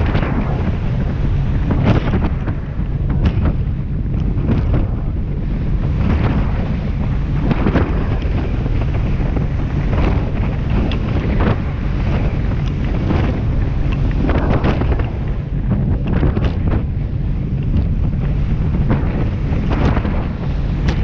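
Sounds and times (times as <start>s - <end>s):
boat engine running: 0.0s - 21.0s
hull slapping waves: 0.0s - 21.0s
wind noise on microphone: 0.0s - 21.0s.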